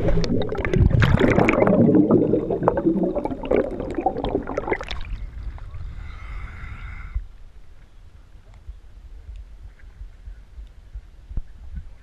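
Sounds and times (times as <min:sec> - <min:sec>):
underwater bubbles rushing: 0:00.0 - 0:05.5
faint background noise: 0:00.0 - 0:12.0.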